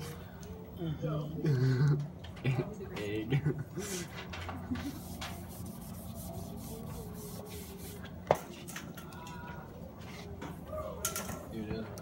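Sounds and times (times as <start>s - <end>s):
steady low hum: 0.0s - 8.3s
marker rubbing on whiteboard: 4.8s - 8.1s.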